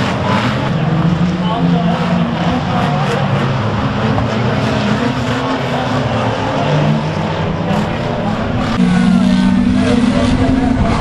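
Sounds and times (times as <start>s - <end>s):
racing car engines running: 0.0s - 11.0s.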